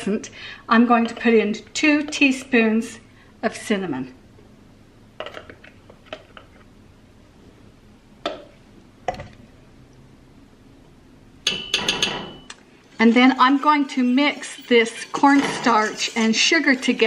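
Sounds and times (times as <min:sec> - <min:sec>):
metal spoon tapping on steel pot: 0:11.5 - 0:12.6.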